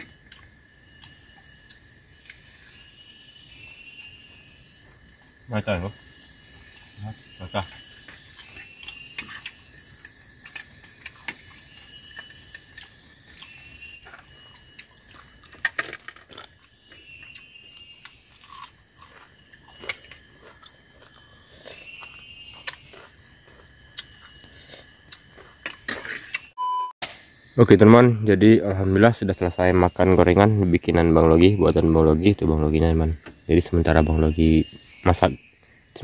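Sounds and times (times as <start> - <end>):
thin very high tone: 0.0 - 15.4
insect chirps: 0.0 - 36.0
insect high whine: 0.0 - 36.0.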